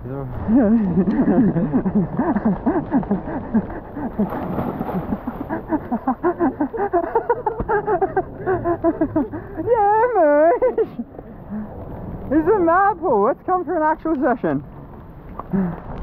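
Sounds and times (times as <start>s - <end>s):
splash into swimming pool: 4.2s - 5.7s.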